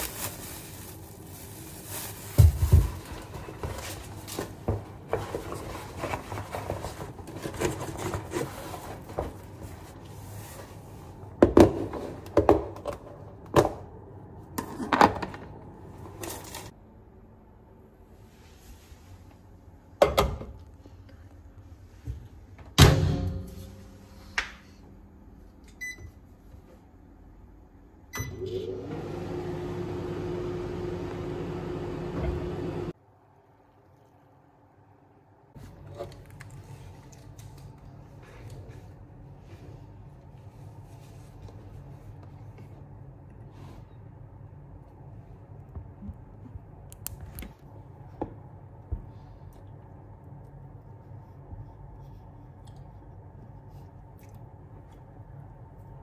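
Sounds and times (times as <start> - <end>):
shopping bags rustling: 0.0 - 11.0
microwave oven humming: 22.5 - 33.0.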